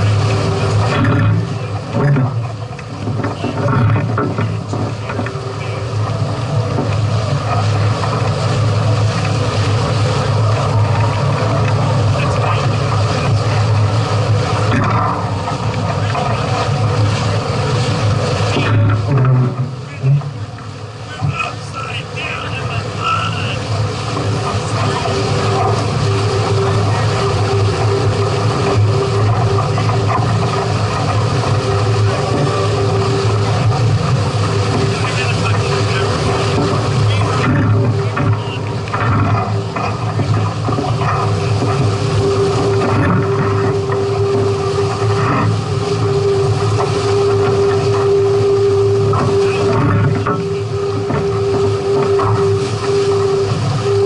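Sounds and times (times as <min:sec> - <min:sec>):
deep rumble: 0:00.0 - 0:54.0
low hum: 0:00.0 - 0:54.0
water running past hulls: 0:00.0 - 0:54.0.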